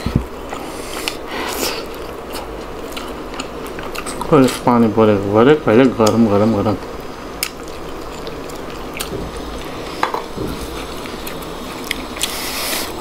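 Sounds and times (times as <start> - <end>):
steady background hiss: 0.0 - 13.0
wet stirring and squishing of food: 6.9 - 13.0.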